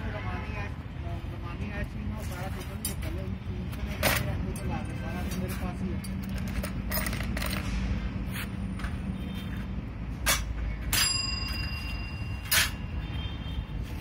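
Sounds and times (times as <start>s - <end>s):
metal parts clanking: 3.8s - 5.0s, 6.0s - 8.0s, 10.2s - 13.0s.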